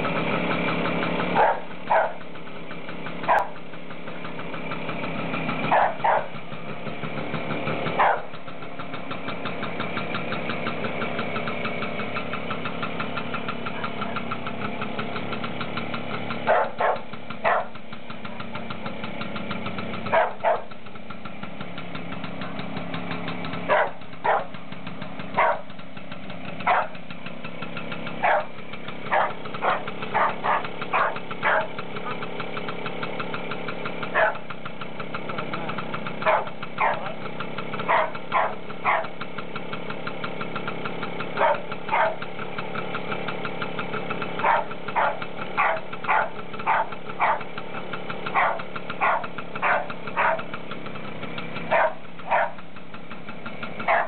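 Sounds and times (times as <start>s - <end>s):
two-stroke engine idling: 0.0s - 54.0s
dog barking: 1.4s - 2.2s, 3.3s - 3.6s, 5.7s - 6.4s, 8.0s - 8.4s, 16.5s - 17.8s, 20.1s - 20.7s, 23.7s - 24.6s, 25.4s - 25.7s, 26.7s - 27.0s, 28.2s - 28.5s, 29.1s - 31.7s, 34.2s - 34.4s, 36.2s - 37.2s, 37.9s - 39.1s, 41.4s - 42.2s, 44.4s - 47.5s, 48.3s - 50.5s, 51.7s - 52.6s.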